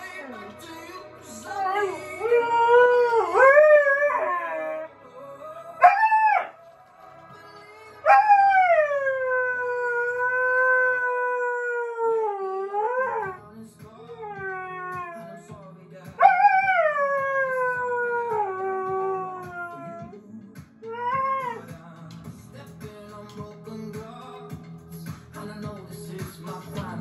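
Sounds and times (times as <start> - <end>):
song with steady beat: 0.0 - 11.0, 13.0 - 27.0
dog howling: 1.6 - 4.9, 5.8 - 6.6, 8.1 - 13.4, 14.2 - 15.4, 16.2 - 20.1, 20.9 - 21.6.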